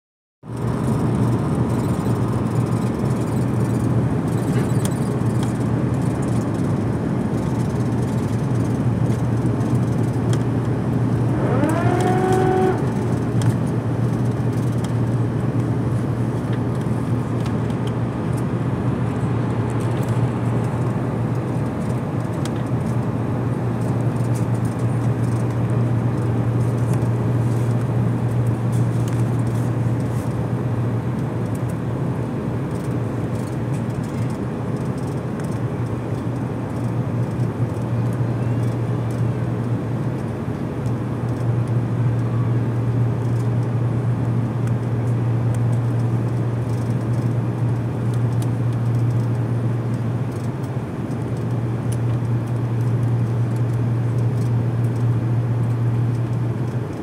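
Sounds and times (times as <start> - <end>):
airliner engine hum: 0.5 - 57.0
short rising tone: 11.2 - 13.2.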